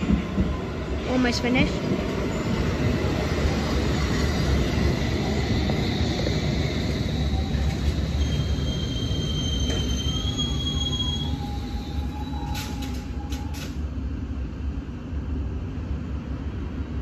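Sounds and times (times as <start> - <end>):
train rumbling: 0.0 - 17.0
wheel squeal: 5.2 - 13.8.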